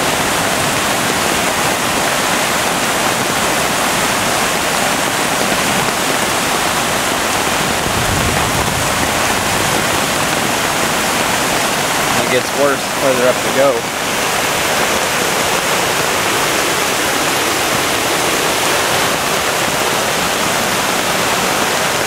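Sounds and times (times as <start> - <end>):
floodwater rushing through rapids: 0.0 - 22.0.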